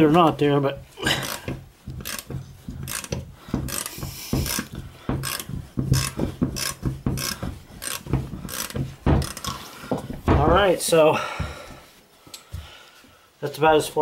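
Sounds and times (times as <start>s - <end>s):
ratchet wrench clicking: 2.0s - 2.3s, 2.9s - 9.5s.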